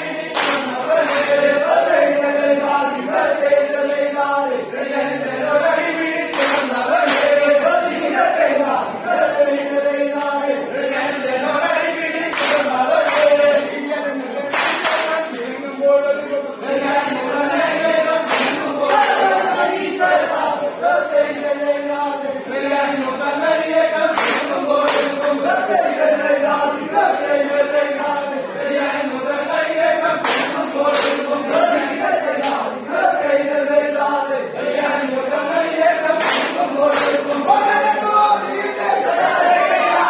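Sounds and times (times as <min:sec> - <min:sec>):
group handclaps: 0:00.0 - 0:03.6, 0:05.7 - 0:08.5, 0:10.1 - 0:15.5, 0:16.9 - 0:20.3, 0:23.4 - 0:25.7, 0:29.5 - 0:32.8, 0:35.5 - 0:38.2
men chanting in unison: 0:00.0 - 0:40.0.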